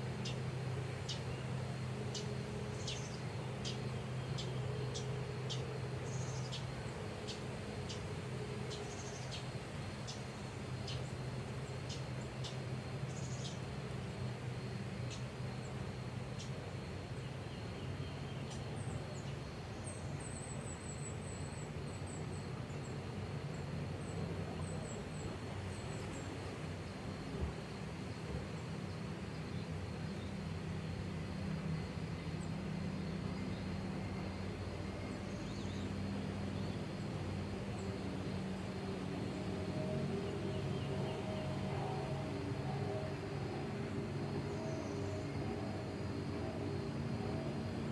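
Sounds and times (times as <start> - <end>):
low outdoor rumble: 0.0 - 47.9
steady low hum: 0.0 - 47.9
small birds chirping: 0.2 - 14.2.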